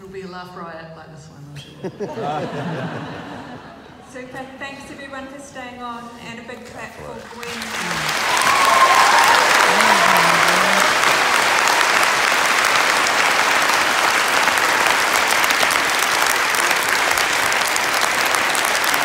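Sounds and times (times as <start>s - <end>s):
audience applauding: 7.3s - 19.0s.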